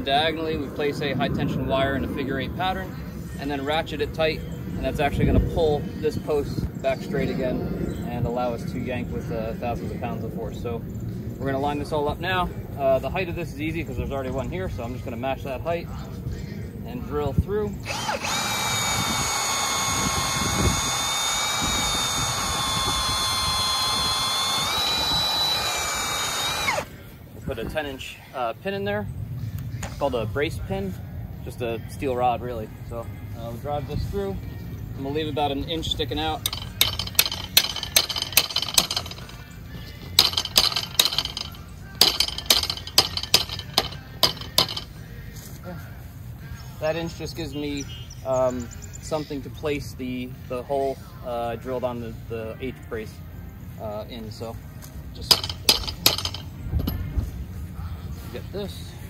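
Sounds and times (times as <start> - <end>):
electric drill boring wood: 17.8 - 26.9, 36.4 - 39.4, 40.2 - 44.9
hammer striking steel pin: 36.4 - 39.4, 40.2 - 44.9, 55.2 - 57.1.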